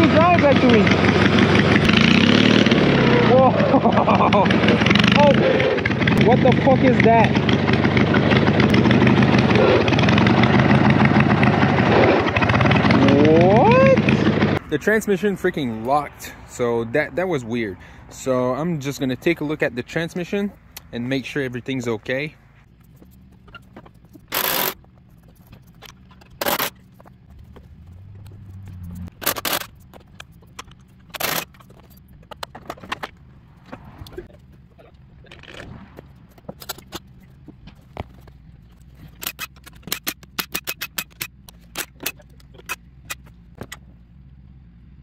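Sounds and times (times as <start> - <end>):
metallic clicks and clatters: 34.0 - 43.8.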